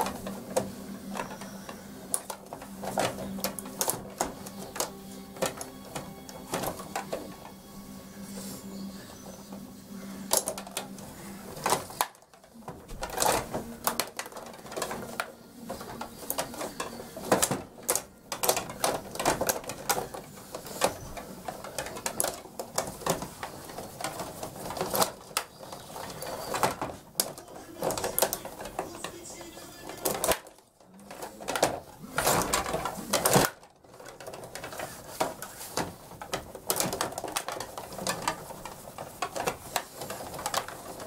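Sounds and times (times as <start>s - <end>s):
game rods rattling and sliding: 0.0s - 41.0s
puck clacking: 8.7s - 30.6s.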